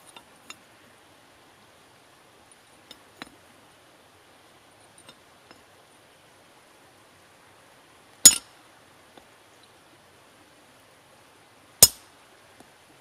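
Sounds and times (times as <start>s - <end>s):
faint metallic clinks: 0.0s - 0.6s, 4.8s - 5.7s, 8.2s - 8.5s.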